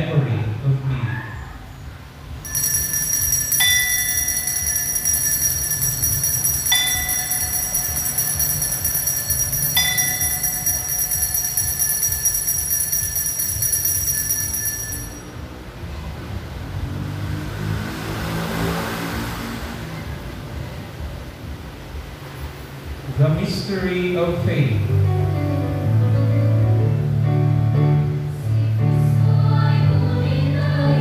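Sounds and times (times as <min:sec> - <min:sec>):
lower-toned bell strikes: 0:02.4 - 0:15.3
small bells jingling: 0:02.4 - 0:15.4.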